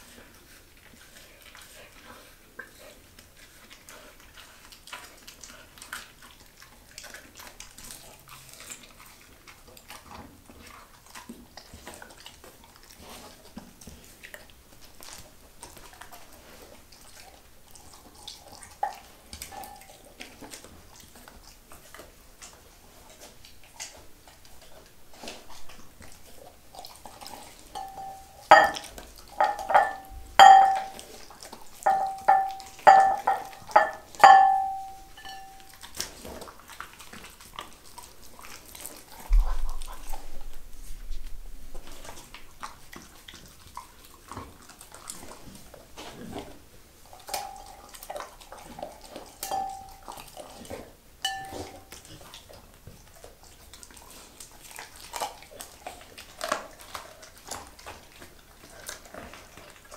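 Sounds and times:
dog licking: 0.0 - 40.5, 47.1 - 59.9
teeth clinking against glass bowl: 18.8 - 20.0, 27.7 - 31.1, 31.8 - 35.8, 47.2 - 48.0, 49.4 - 50.4, 51.2 - 52.0.

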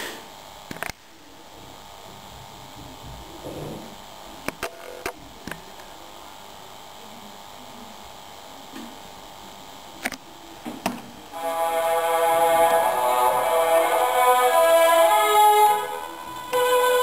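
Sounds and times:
radio static hiss: 0.0 - 17.0
orchestral music on radio: 11.3 - 17.0.

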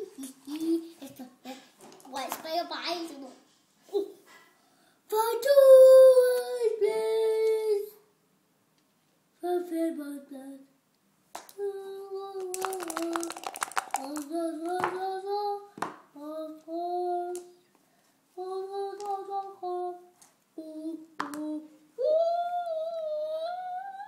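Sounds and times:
child singing: 5.1 - 8.1, 9.4 - 10.8, 11.5 - 13.4, 14.0 - 17.7, 18.3 - 24.0
dice rattling in a cup: 12.4 - 14.9.

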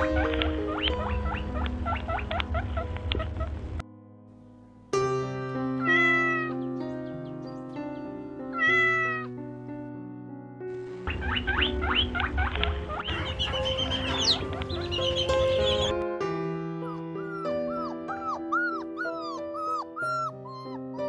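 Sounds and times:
baby chicks peeping: 0.0 - 3.6, 6.2 - 9.3, 11.0 - 16.0
soft background music: 0.0 - 21.0
cat meowing: 5.8 - 6.6, 8.5 - 9.4.

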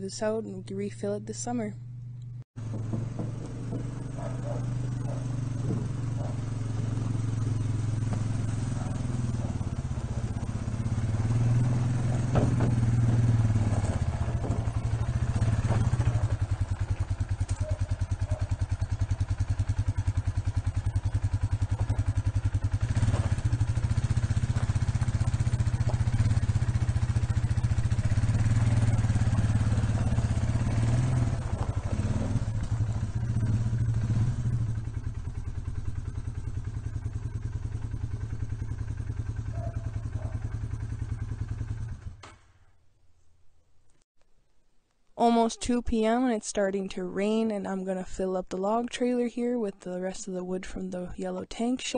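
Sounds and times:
quad engine putter: 1.0 - 42.8
trailer clunks: 1.9 - 35.1.

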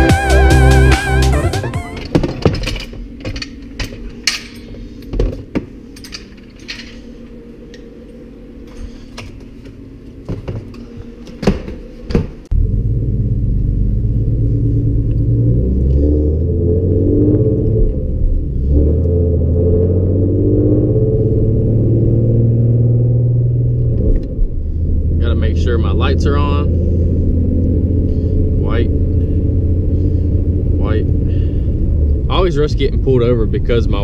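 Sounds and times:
car engine running inside cabin: 12.5 - 34.0.

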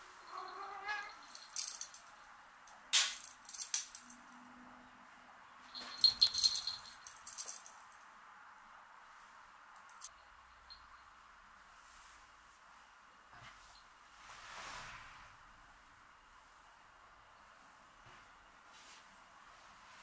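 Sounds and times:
cat meowing: 0.3 - 1.2
jingling clattering rattles: 0.3 - 2.3, 5.7 - 7.9.

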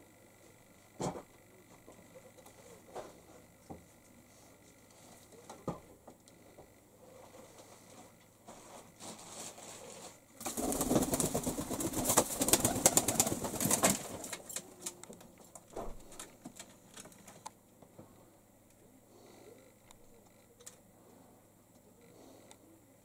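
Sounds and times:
pigeon wings flapping: 10.4 - 15.0.

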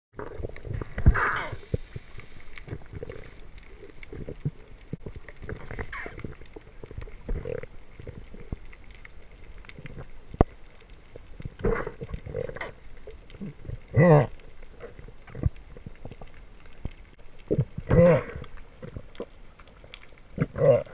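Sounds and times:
muffled underwater gurgles: 0.2 - 8.7, 11.3 - 16.2, 17.4 - 19.2, 20.3 - 20.9.

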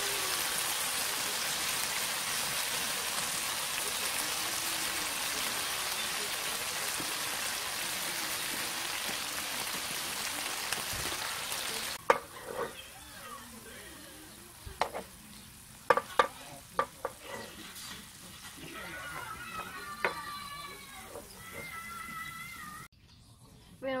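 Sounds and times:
food sizzling in frying pan: 0.0 - 22.9
metal tongs scraping pan: 12.0 - 12.9, 17.0 - 18.6.

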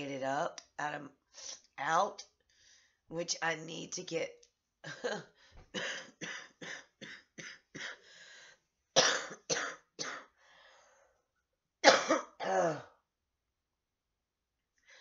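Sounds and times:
woman coughing: 5.8 - 8.0, 9.0 - 10.3, 11.8 - 13.0.

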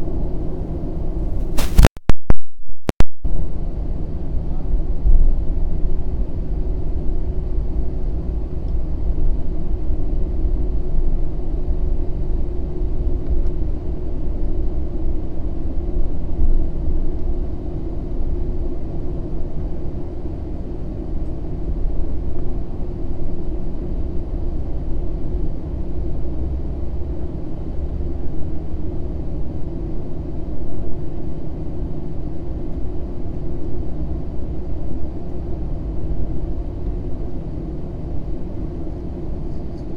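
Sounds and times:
jet engine low rumble: 0.0 - 1.6, 3.3 - 39.9
constant hum: 0.0 - 1.9, 3.3 - 39.9.

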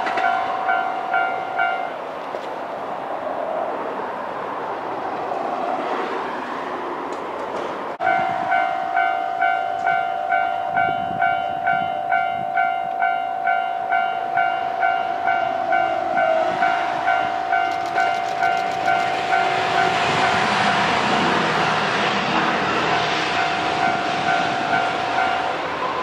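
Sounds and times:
train running noise: 0.0 - 26.0
level crossing bell ringing: 0.2 - 1.9, 8.0 - 20.4
train wheel clicks: 17.5 - 20.4.

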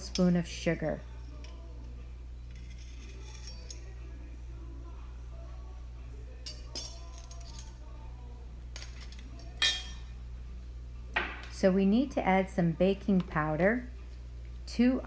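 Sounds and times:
metal spoon and knife clinking: 0.0 - 0.4, 2.5 - 4.0, 6.4 - 7.8, 8.8 - 10.1
steady low hum: 0.0 - 15.0.

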